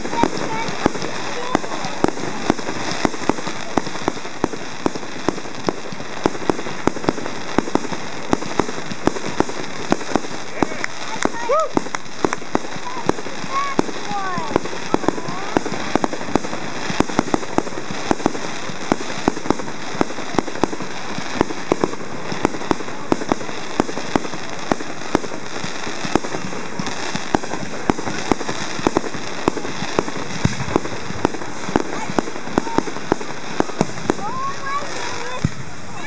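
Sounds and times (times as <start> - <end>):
fireworks bangs and crackling pops: 0.0 - 36.0.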